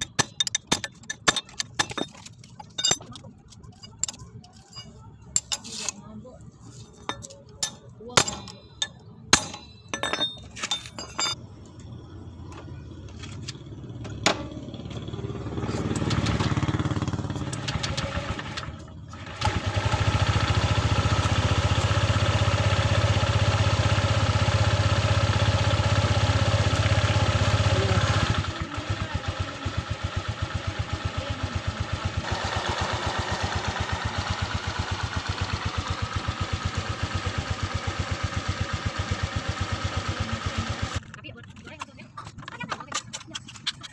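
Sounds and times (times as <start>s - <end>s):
wrench clinking on metal: 0.0s - 6.0s, 7.0s - 11.4s
scooter engine running: 11.8s - 41.1s.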